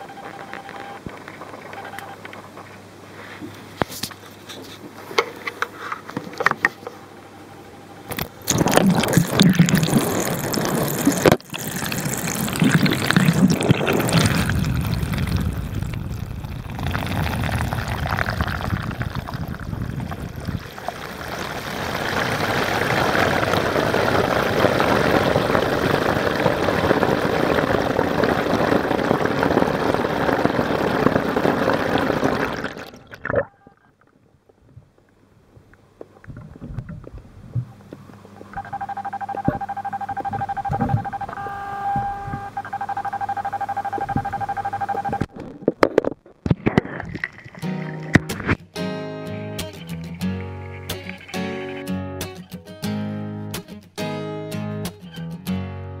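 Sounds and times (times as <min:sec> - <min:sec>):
underwater bubbling: 0:08.1 - 0:34.2, 0:43.5 - 0:48.6.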